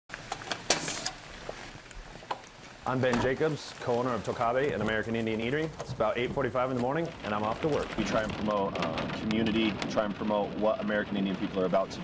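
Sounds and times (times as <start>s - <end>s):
metal screen door unlatching: 0.4s - 1.2s.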